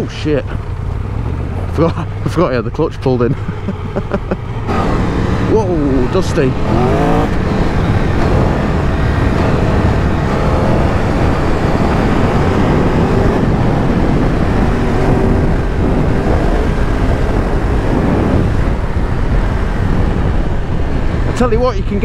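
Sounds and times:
motorcycle engine running at speed: 0.0s - 22.0s
wind noise on microphone: 6.5s - 22.0s.

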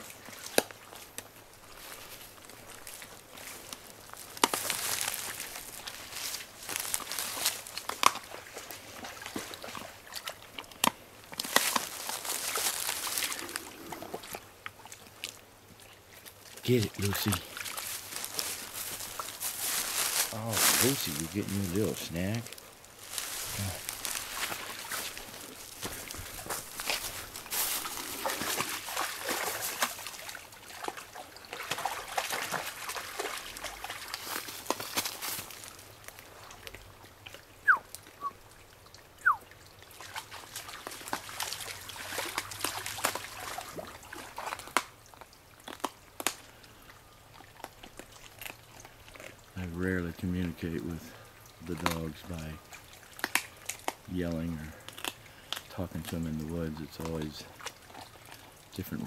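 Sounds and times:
water splashing and trickling: 0.0s - 59.0s
wolf crunching on bones: 0.3s - 38.2s, 40.0s - 50.9s, 51.6s - 59.0s
sharp bone cracks: 53.1s - 54.1s, 54.8s - 55.7s.

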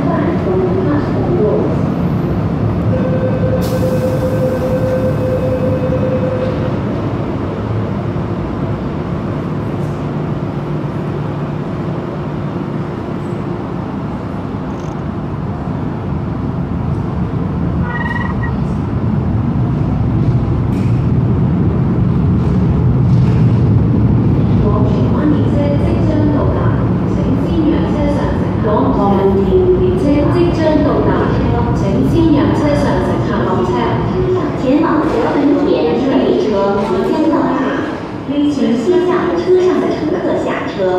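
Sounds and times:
train wheels rumbling on track: 0.0s - 40.9s
brief high tone: 17.8s - 18.6s
steady whine: 17.8s - 18.9s.

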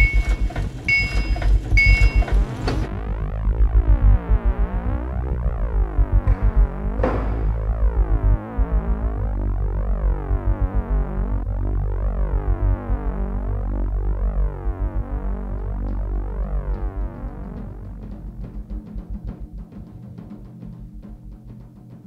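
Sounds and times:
experimental electronic music: 2.4s - 18.0s.

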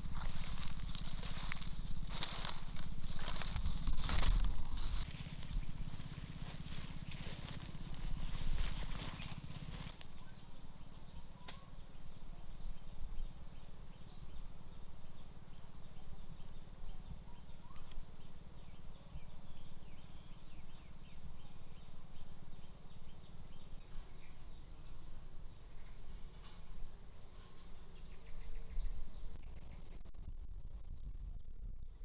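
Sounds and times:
insect drone: 0.0s - 10.0s, 23.8s - 32.0s
low rumble: 0.0s - 10.0s, 27.8s - 32.0s
birds chirping: 0.0s - 29.9s.

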